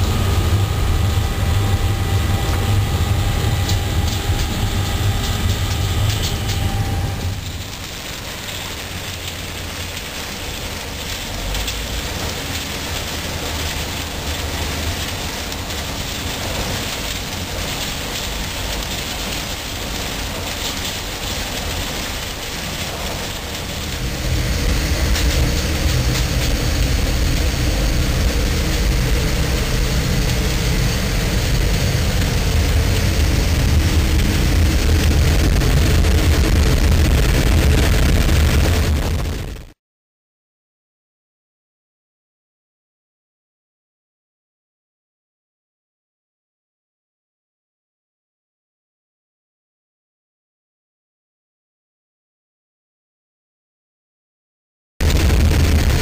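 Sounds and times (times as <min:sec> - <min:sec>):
drying drum and conveyor rumbling: 0:00.0 - 0:39.7, 0:55.0 - 0:56.0.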